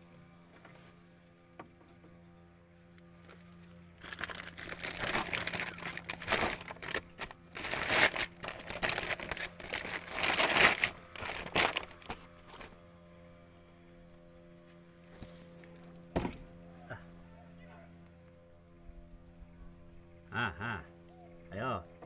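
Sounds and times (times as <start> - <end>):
crinkling and rustling: 3.2 - 12.8.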